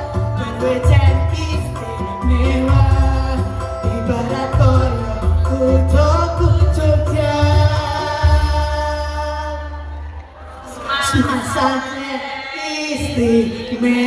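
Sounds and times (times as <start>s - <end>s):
mixed choir singing: 0.0s - 5.0s, 9.7s - 14.0s
electronic keyboard: 0.0s - 10.1s.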